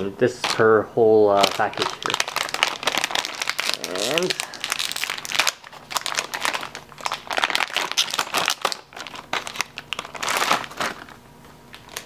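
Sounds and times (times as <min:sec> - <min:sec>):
plastic wrapper crinkling: 0:01.3 - 0:12.0.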